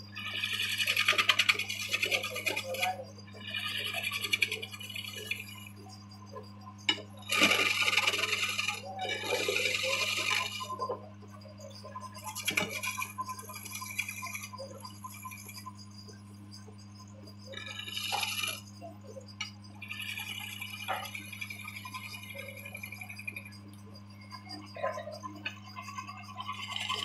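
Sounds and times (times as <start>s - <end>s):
tool cutting wood: 0.4s - 2.8s, 7.3s - 10.8s
electric motor humming: 6.9s - 10.8s, 17.6s - 18.8s.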